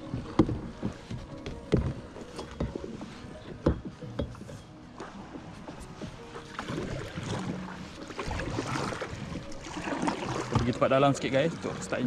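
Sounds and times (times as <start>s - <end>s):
paddle strokes in water: 0.0s - 12.0s
paddle knocking plastic hull: 8.2s - 10.9s.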